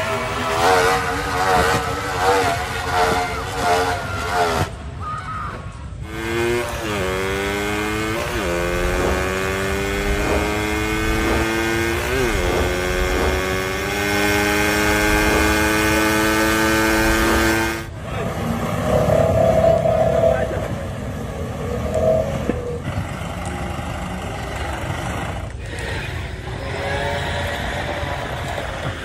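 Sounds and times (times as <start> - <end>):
motorcycle engine accelerating hard: 0.0 - 4.8, 6.0 - 17.9.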